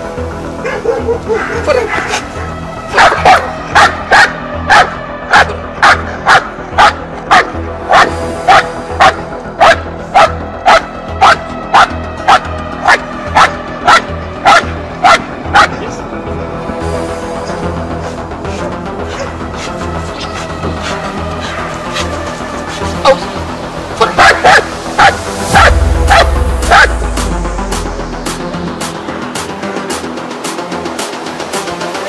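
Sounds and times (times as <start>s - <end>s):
background music: 0.0s - 32.0s
dog barking: 0.6s - 15.7s, 18.5s - 23.2s, 24.0s - 27.0s.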